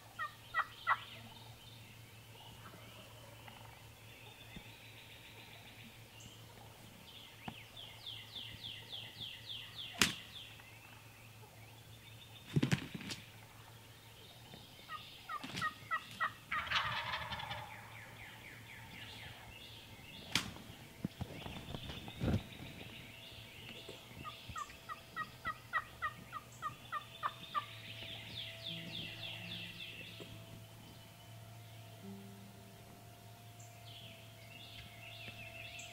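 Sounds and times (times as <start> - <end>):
turkeys gobbling: 0.0 - 1.6, 2.3 - 4.4, 13.2 - 22.9, 23.5 - 31.0
sharp snaps: 9.9 - 10.4, 20.2 - 20.6.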